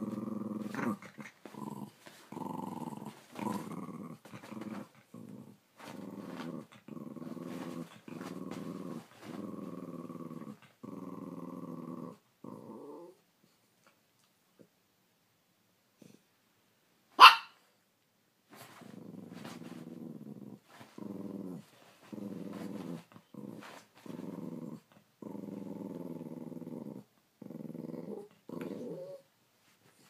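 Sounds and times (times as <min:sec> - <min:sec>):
dog growling: 0:00.0 - 0:13.2, 0:18.7 - 0:29.3
small dog barking: 0:17.2 - 0:17.6.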